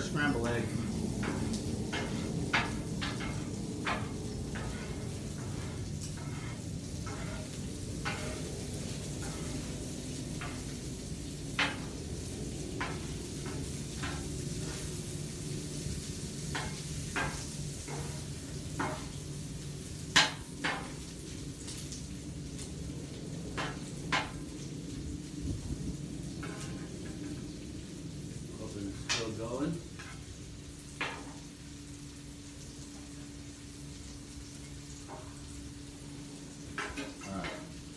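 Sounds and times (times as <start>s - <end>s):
steady low hum: 0.0s - 19.2s
butter sizzling on griddle: 0.0s - 37.9s
sharp pops and crackles: 1.2s - 14.9s, 15.5s - 22.8s, 23.5s - 24.7s.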